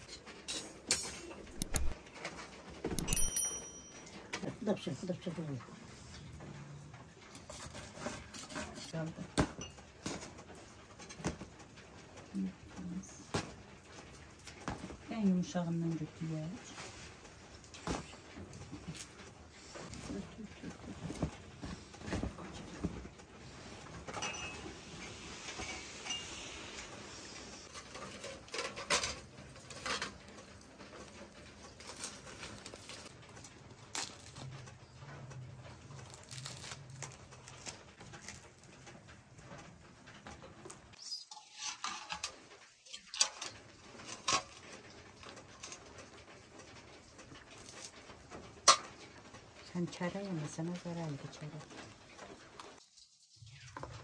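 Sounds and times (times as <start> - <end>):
cloth rustling: 16.7 - 27.8
hands tearing flatbread: 36.0 - 38.4.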